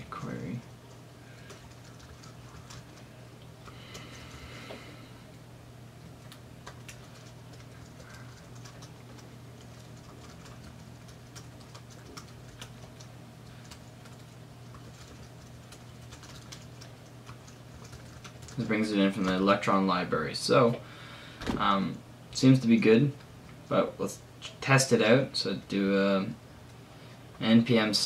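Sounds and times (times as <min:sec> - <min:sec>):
steady low hum: 0:00.0 - 0:28.0
computer keyboard keystrokes: 0:01.5 - 0:02.9, 0:06.3 - 0:18.6.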